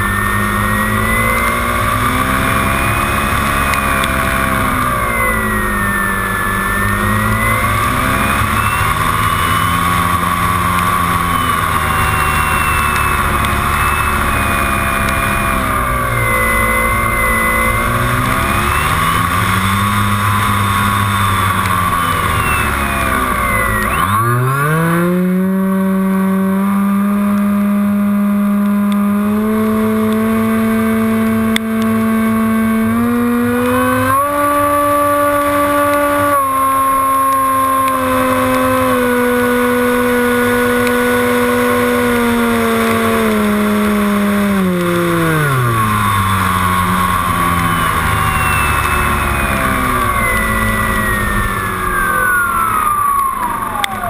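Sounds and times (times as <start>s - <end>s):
electric motor and propeller: 0.0s - 54.0s
high whine sliding down: 0.0s - 54.0s.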